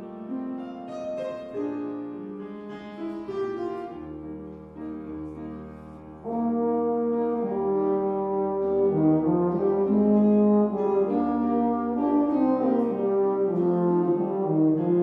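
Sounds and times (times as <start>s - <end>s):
piano accompaniment: 0.0s - 15.0s
baritone horn sustained notes: 5.2s - 15.0s.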